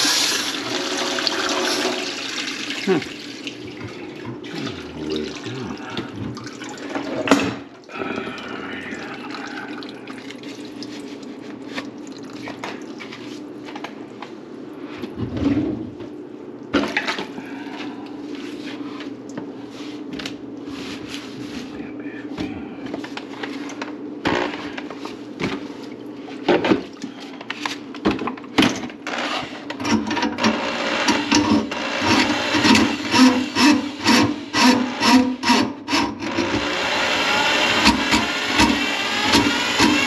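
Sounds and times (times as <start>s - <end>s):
water gurgling in a sink: 0.0s - 13.2s.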